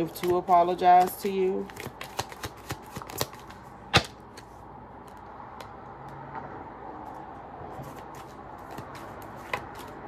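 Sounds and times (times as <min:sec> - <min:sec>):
cards clicking: 0:00.1 - 0:05.7.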